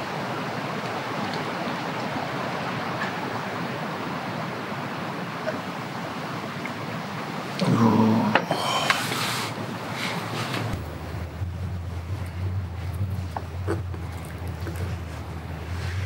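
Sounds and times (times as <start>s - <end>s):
steady rushing noise: 8.9s - 16.0s.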